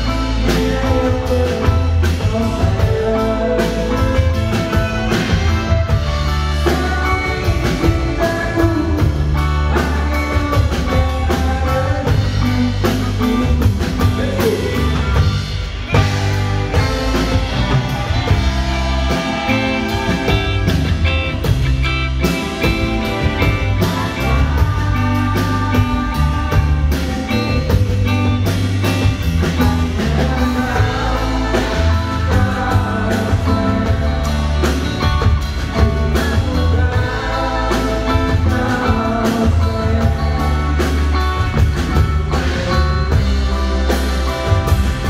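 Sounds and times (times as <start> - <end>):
guitar chords: 0.0 - 45.0
heavy bass guitar line: 0.0 - 45.0
drum kit hits: 13.0 - 33.0.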